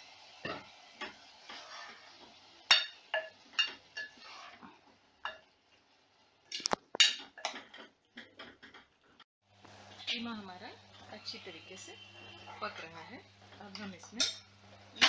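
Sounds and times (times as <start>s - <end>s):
spatula scraping a pot: 1.4s - 2.3s, 3.6s - 4.8s.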